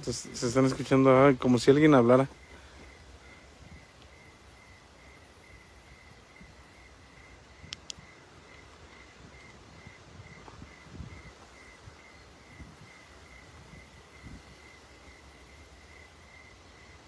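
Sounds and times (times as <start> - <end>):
insect chirping: 0.0 - 17.0
sharp clicks: 7.7 - 8.0.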